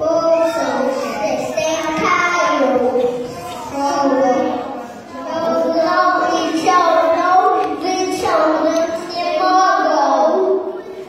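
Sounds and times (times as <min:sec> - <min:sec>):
children singing: 0:00.0 - 0:11.0.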